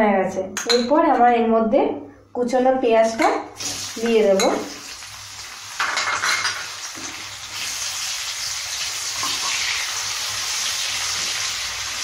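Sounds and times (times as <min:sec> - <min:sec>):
onions sizzling in hot oil: 0:03.6 - 0:12.0.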